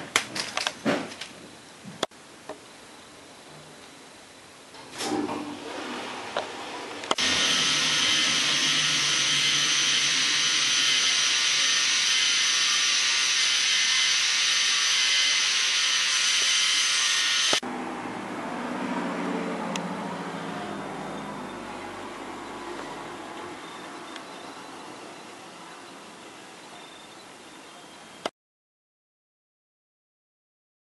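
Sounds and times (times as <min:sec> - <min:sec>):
small electric motor whirring: 0:07.1 - 0:17.6.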